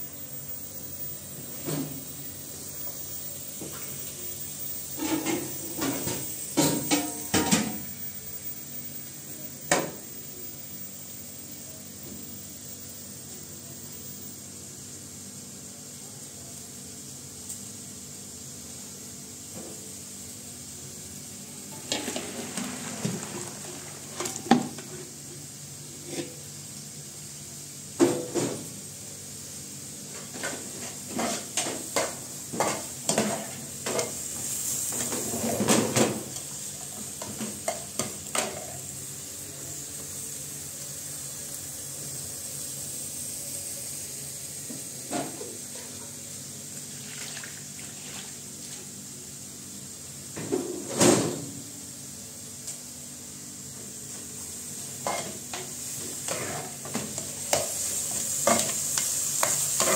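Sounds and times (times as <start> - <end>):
steady sizzle: 0.0 - 59.9
pots and pans clanking: 1.5 - 2.2, 4.9 - 8.0, 21.7 - 25.0, 30.1 - 34.2, 34.9 - 38.8, 55.0 - 59.9.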